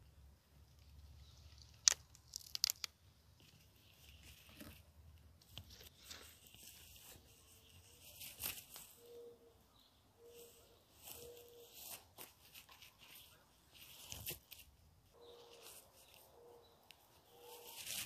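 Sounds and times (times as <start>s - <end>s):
stalks crackling and rustling: 0.6s - 9.1s, 10.4s - 18.0s
green onion stalks cracking: 1.4s - 3.6s.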